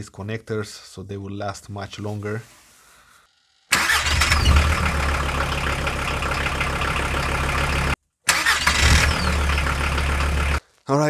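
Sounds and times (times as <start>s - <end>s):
van engine starting and idling: 3.7s - 10.6s.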